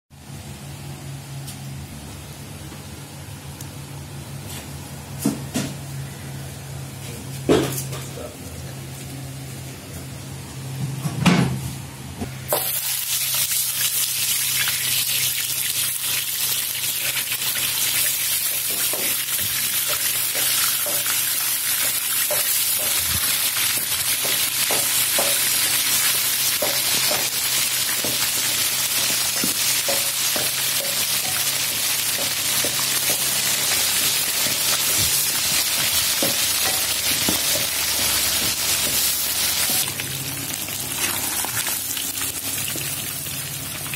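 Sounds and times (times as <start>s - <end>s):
fish sizzling in hot oil: 12.5s - 43.9s
oil popping and crackling: 12.5s - 43.9s.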